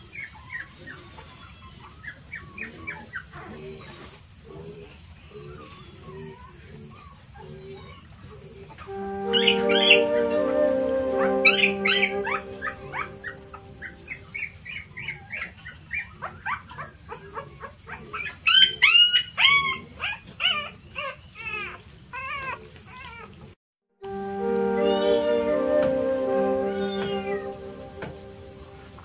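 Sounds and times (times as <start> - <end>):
held music notes: 8.9 - 14.2, 24.0 - 29.0.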